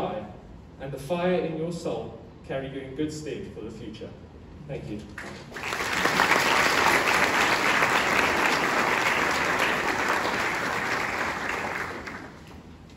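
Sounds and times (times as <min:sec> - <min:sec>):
audience applauding: 0:05.2 - 0:12.6.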